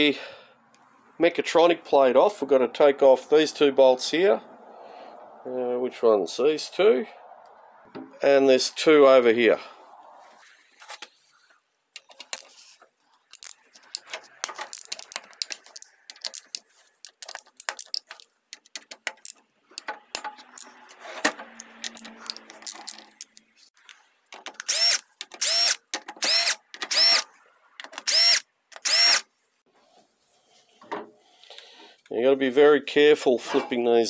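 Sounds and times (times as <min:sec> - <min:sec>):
ratchet buzzes: 0:24.6 - 0:27.3, 0:28.0 - 0:29.3.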